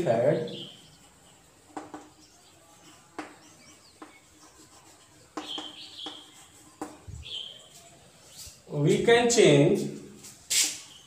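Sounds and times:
chalk tapping and scraping: 0.0s - 9.1s, 9.8s - 11.0s
chalk squeaks: 0.3s - 8.6s.

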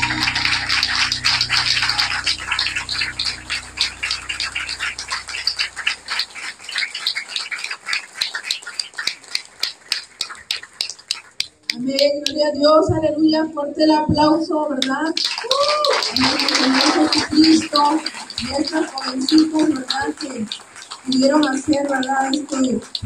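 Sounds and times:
low held music note: 0.0s - 6.2s
congregation applauding: 0.0s - 11.7s, 15.1s - 23.0s.

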